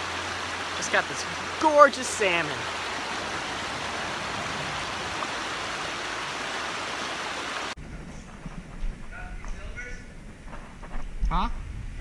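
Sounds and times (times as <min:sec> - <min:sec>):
creek water rushing over rocks: 0:00.0 - 0:07.8.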